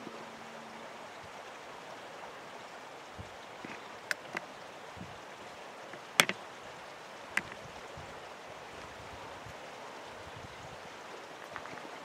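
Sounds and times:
sharp clicks: 3.6 - 4.4, 6.0 - 6.4.

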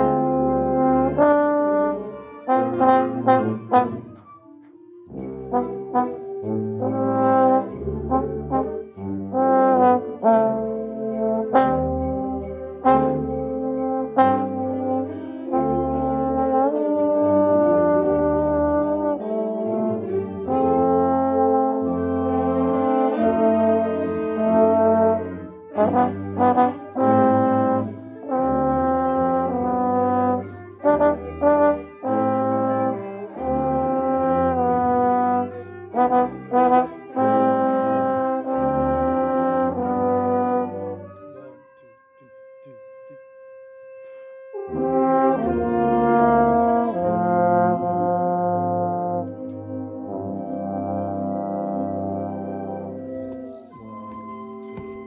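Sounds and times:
trombone sustained notes: 0.0 - 55.0
wind band playing: 0.0 - 55.0
sleigh bells jingling: 5.0 - 22.6, 25.8 - 43.2.

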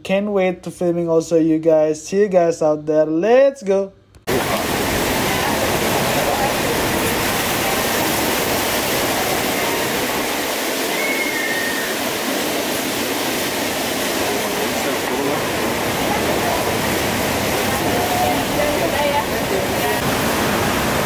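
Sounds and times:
ocean surf roaring: 4.3 - 21.0.

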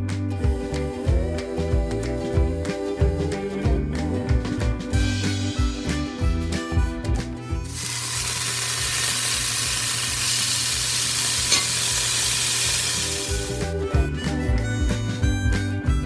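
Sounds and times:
background music: 0.0 - 16.0
spices sizzling in hot oil: 7.7 - 13.7.

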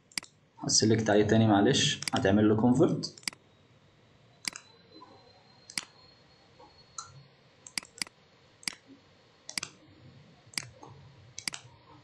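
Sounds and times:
computer mouse clicks: 2.0 - 2.2, 3.2 - 3.4, 4.4 - 4.7, 5.7 - 5.9, 7.0 - 8.8, 9.5 - 9.8, 10.5 - 11.7.

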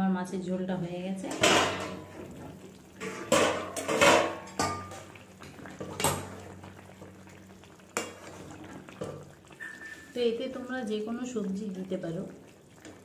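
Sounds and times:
curry simmering: 0.9 - 13.0
metal spatula clanking against pot: 1.3 - 2.2, 3.0 - 5.1.

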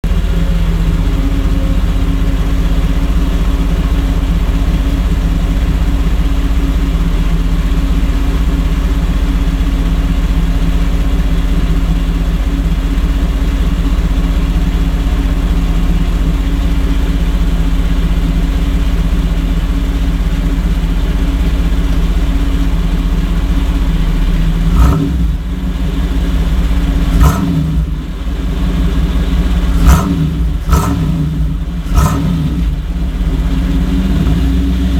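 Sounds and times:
car engine idling: 0.0 - 34.9
engine revving: 23.9 - 25.7, 26.3 - 28.3, 29.4 - 34.9.

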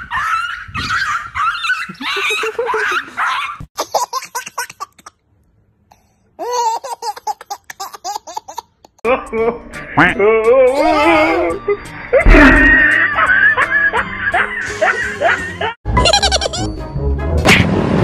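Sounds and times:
dog yelping and whimpering: 0.0 - 3.6
baby laughing: 0.0 - 5.2, 6.4 - 9.1, 10.7 - 11.7, 12.3 - 16.7.

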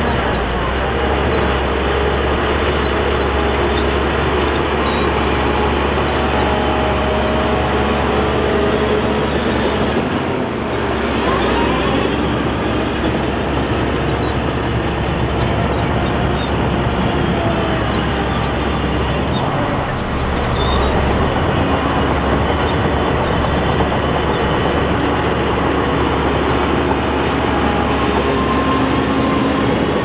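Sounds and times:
diesel earthmoving machinery rumble: 0.0 - 30.0.

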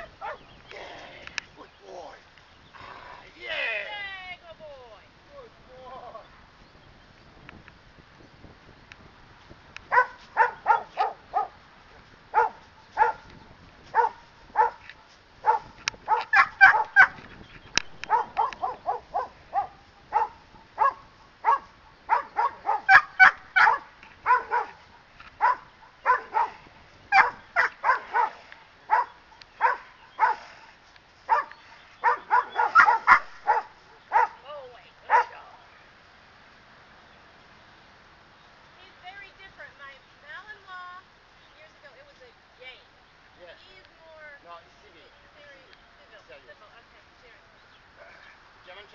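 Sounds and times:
dog barking: 0.0 - 0.4, 9.9 - 11.6, 12.3 - 13.3, 13.9 - 17.2, 18.0 - 24.8, 25.4 - 30.5, 31.3 - 34.4, 35.1 - 35.4.

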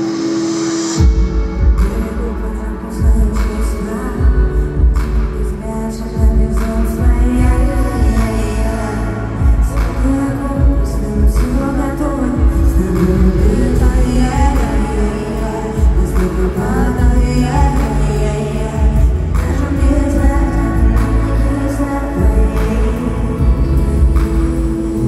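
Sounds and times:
woman singing pop song: 0.0 - 25.0
heavy bass beat: 9.3 - 21.6, 22.2 - 25.0.

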